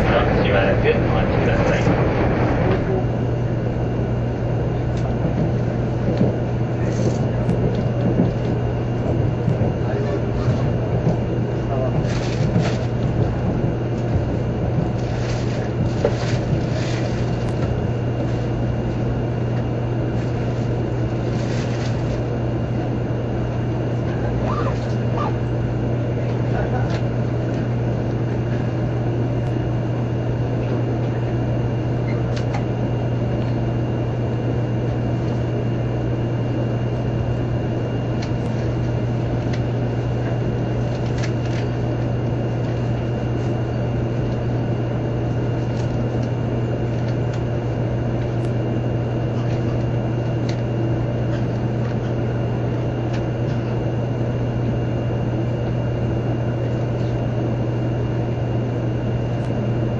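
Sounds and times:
train car hum and rumble: 0.0 - 59.9.

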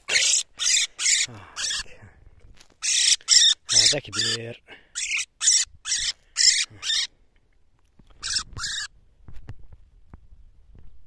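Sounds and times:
bird distress squawks: 0.0 - 1.9, 2.8 - 7.1, 8.2 - 8.9.

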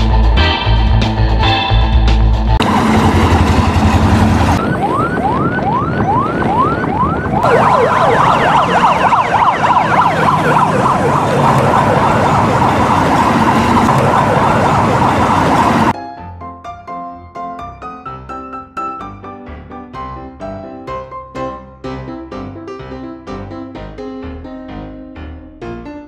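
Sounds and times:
electronic siren wailing: 4.0 - 15.9
piano music: 7.4 - 26.0.

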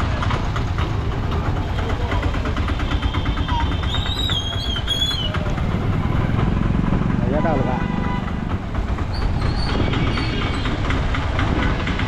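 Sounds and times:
street noise: 0.0 - 12.0
vehicle engine rumbling: 0.0 - 12.0.

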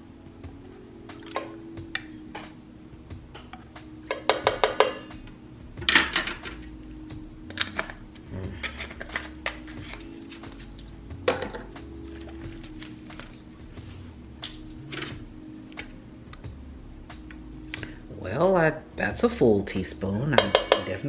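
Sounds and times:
soft background music: 0.0 - 21.0
glass bottle and spoon clinking: 20.4 - 21.0.

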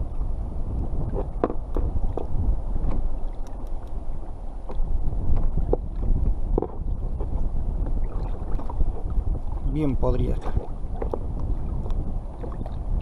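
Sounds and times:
wind buffeting microphone: 0.0 - 13.0
faint clicks and knocks of handling: 1.2 - 4.0.

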